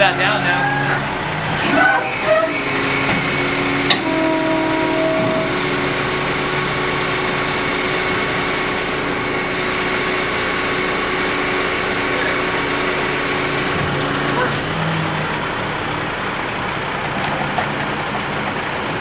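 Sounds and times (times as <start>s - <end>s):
hydraulics humming: 0.0s - 19.0s
brief higher whine: 1.5s - 9.4s.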